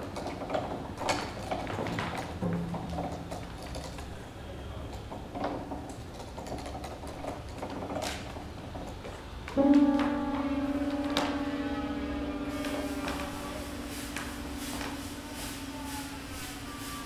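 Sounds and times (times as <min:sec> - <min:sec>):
low held musical note: 0:09.6 - 0:17.0.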